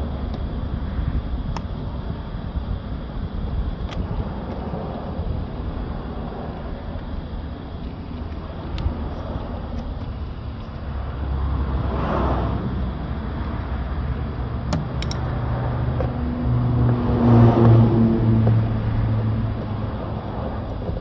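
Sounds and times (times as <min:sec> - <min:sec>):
vehicles passing: 0:03.9 - 0:21.0.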